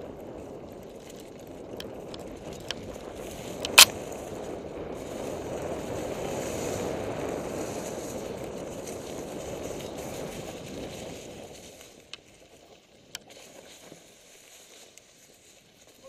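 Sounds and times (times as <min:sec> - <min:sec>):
wind on microphone: 0:00.0 - 0:11.8
bike tyres crunching over leaves: 0:00.0 - 0:16.0.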